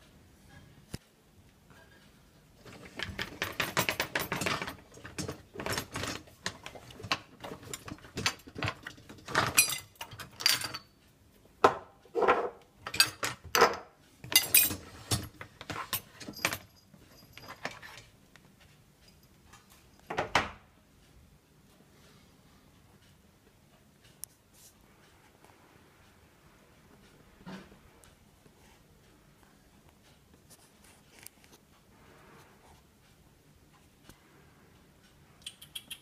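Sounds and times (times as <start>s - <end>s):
dishes and cutlery clattering: 2.7s - 10.9s, 11.7s - 18.1s.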